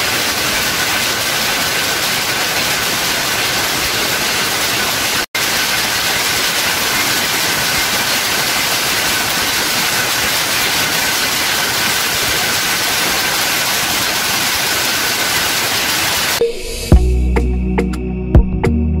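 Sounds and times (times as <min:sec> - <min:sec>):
power looms running: 0:00.0 - 0:16.4.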